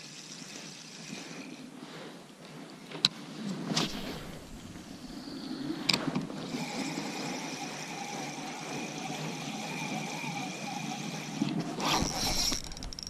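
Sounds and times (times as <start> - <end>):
reel gears whining: 0.0 - 1.7, 4.9 - 13.0
reel click: 5.7 - 13.0.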